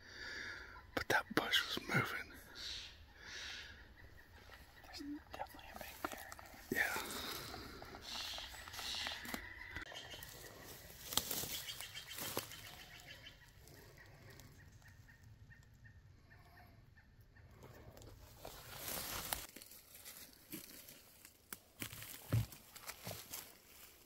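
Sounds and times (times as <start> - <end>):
footsteps through brush: 5.4 - 14.5, 17.8 - 24.0.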